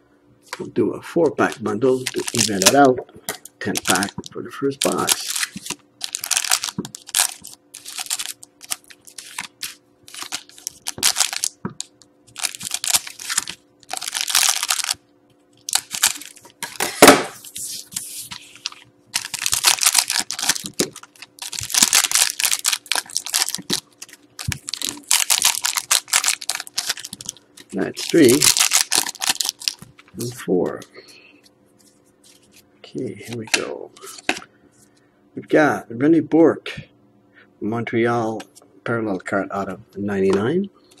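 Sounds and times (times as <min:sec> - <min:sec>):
faint steady hum: 0:00.0 - 0:41.0
foil wrappers crinkling and tearing: 0:01.4 - 0:02.9, 0:03.6 - 0:15.0, 0:15.6 - 0:30.4.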